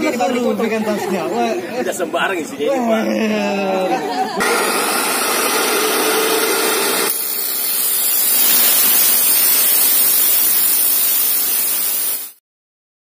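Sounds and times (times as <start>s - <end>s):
abrasive chop saw cutting metal: 4.4s - 12.2s.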